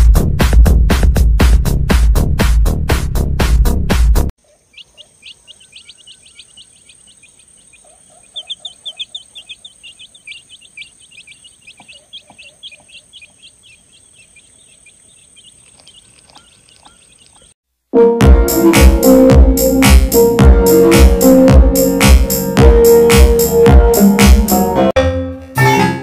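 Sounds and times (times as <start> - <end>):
baby chick peeping: 4.4 - 17.6
electronic music: 18.0 - 24.9.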